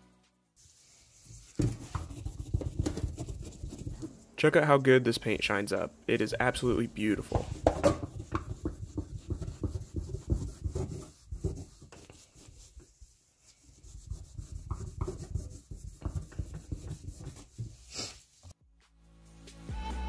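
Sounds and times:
cloth rubbing on metal panel: 0.6s - 18.4s.

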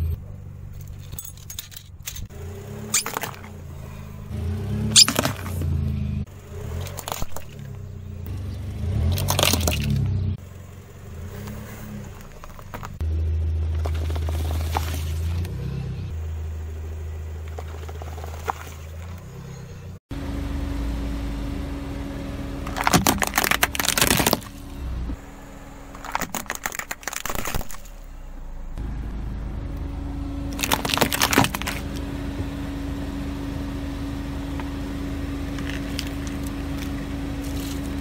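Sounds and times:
car engine running: 0.0s - 38.0s
plastic cracking and crunching: 22.7s - 24.5s, 26.0s - 28.0s, 30.5s - 32.0s.

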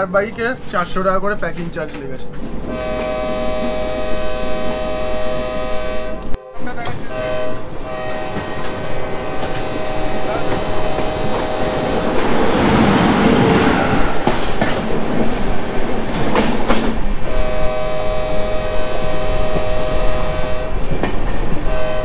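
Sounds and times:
train rumbling clatter: 0.0s - 22.0s
train horn: 2.6s - 12.4s, 17.2s - 22.0s.

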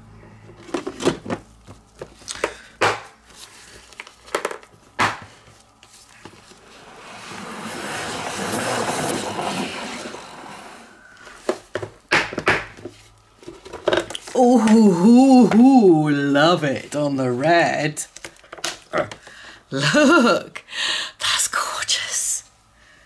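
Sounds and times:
salad spinner whirring: 6.6s - 11.2s.

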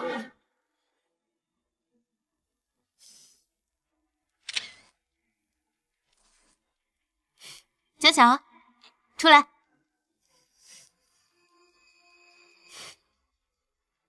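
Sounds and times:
camera shutter clicks: 4.5s - 4.8s.

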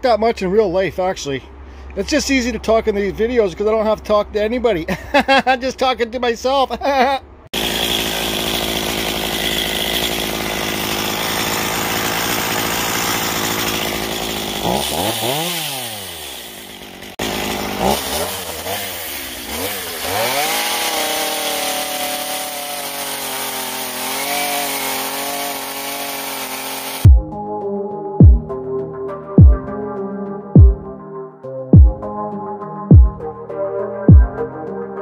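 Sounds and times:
chainsaw running and revving: 7.5s - 27.1s.

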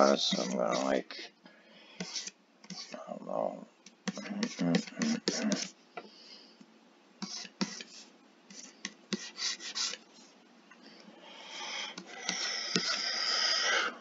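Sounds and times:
stylus scratching drawing tablet: 0.0s - 1.3s, 2.0s - 3.0s, 4.0s - 5.8s, 7.2s - 10.0s, 11.9s - 13.8s.

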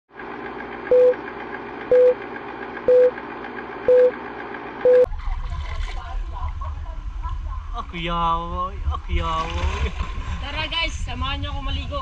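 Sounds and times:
countdown beeps: 0.9s - 1.2s, 1.9s - 2.2s, 2.9s - 3.1s, 3.9s - 4.1s, 4.8s - 5.1s
water sounds: 5.1s - 6.8s, 8.9s - 11.2s.

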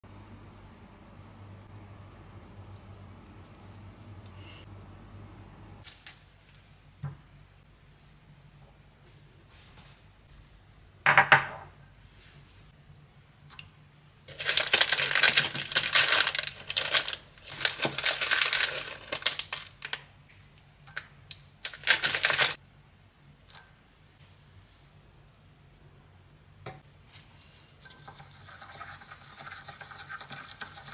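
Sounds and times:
sugar spooned into glass bowl: 27.5s - 30.9s.

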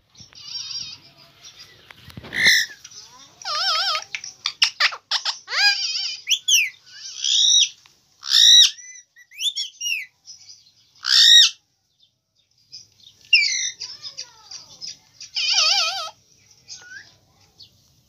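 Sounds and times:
parakeet chirps: 0.2s - 1.7s, 2.3s - 10.1s, 11.0s - 11.6s, 13.2s - 17.2s
parakeet calling: 0.2s - 11.6s, 13.3s - 17.1s.

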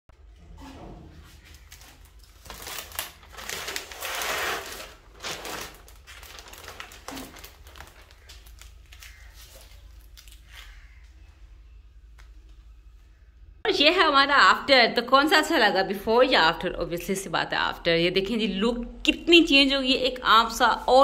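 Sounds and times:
vinyl sheet crinkling and rustling: 1.2s - 10.8s.

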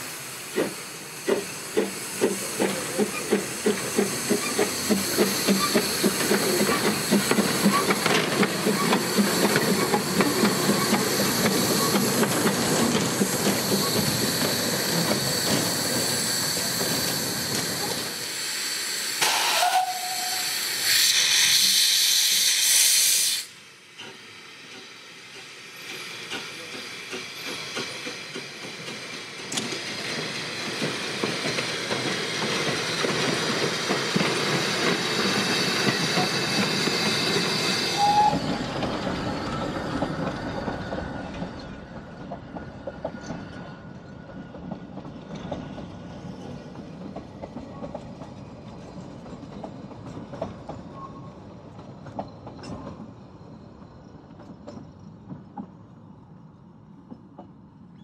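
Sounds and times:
loud rush of steam: 0.0s - 41.5s
steam engine working: 0.0s - 41.5s
steam locomotive hissing: 0.0s - 50.1s.

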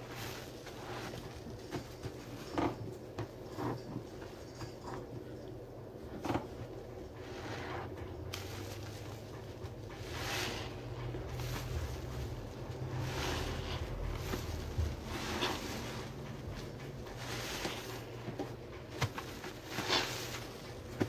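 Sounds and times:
low steady hum: 0.0s - 21.0s
sponge squelching: 10.0s - 21.0s.

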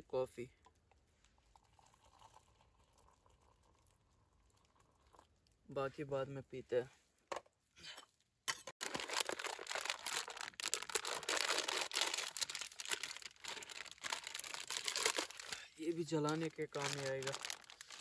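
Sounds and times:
plastic packet crinkling and tearing: 8.8s - 18.0s.

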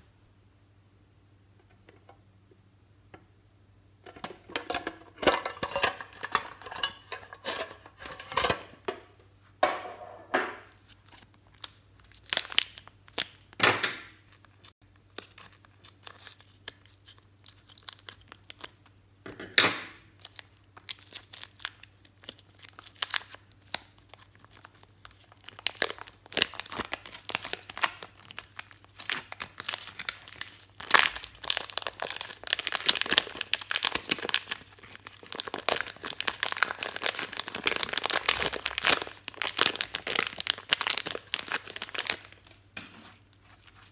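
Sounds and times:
plastic bag crinkling: 20.2s - 43.9s
slime squelching: 20.2s - 43.9s.

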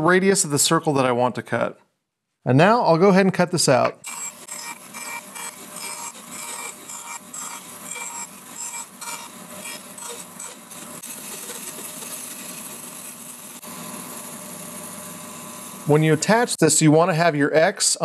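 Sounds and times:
bandsaw cutting wood: 3.8s - 16.1s.

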